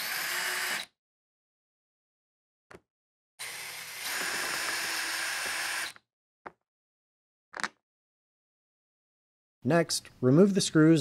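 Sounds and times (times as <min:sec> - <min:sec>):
cordless drill running: 0:00.0 - 0:00.9, 0:03.4 - 0:06.0
drill click: 0:03.4 - 0:06.0.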